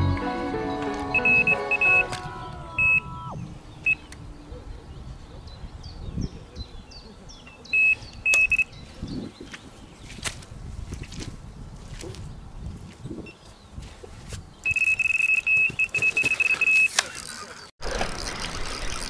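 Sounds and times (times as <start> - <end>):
electronic bite alarm beeping: 1.2 - 2.1, 2.8 - 4.1, 7.8 - 8.7, 14.7 - 17.0.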